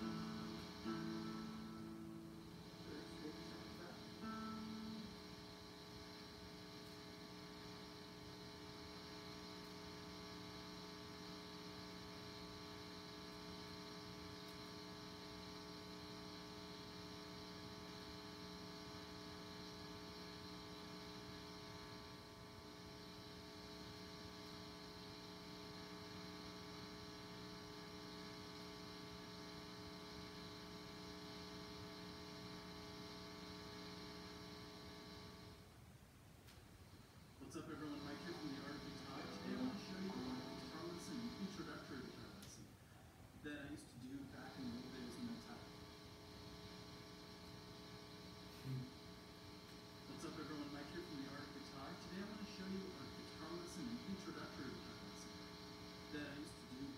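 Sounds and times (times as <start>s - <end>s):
guitar amplifier hum and buzz: 0.0s - 56.9s.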